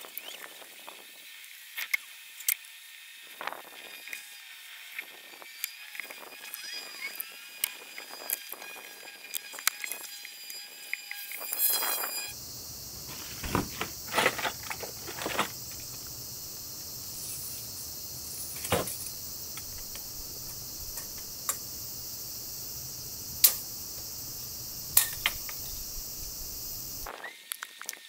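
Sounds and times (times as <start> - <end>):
insects chirring: 0.0 - 28.0
wooden battens knocking: 13.1 - 16.0.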